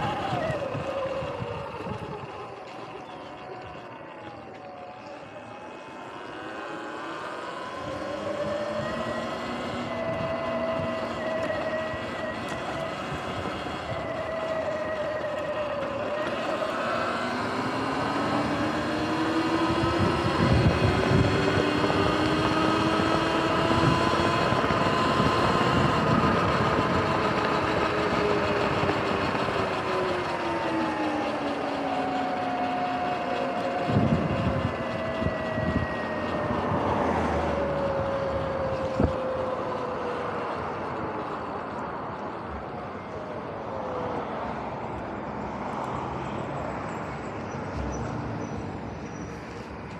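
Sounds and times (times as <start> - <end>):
wind rushing over microphone: 0.0 - 2.6, 7.6 - 29.7, 33.7 - 40.9
electric dirt bike motor whining: 0.0 - 48.0.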